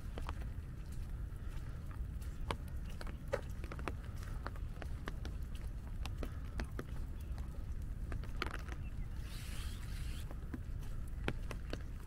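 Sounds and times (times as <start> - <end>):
steady low rumble: 0.0 - 12.0
raindrops tapping on umbrella: 2.5 - 9.0.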